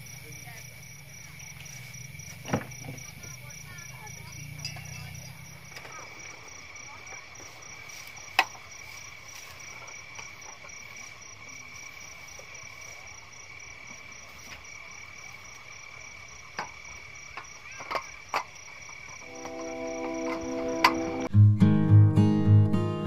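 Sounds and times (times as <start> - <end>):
crickets chirping: 0.0 - 21.3
camp furniture clicks and knocks: 2.4 - 3.1, 16.5 - 21.3
guitar music: 19.2 - 23.0.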